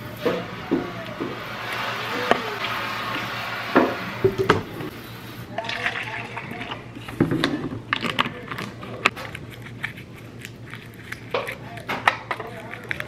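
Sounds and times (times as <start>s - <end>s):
faint voices: 0.0s - 9.2s.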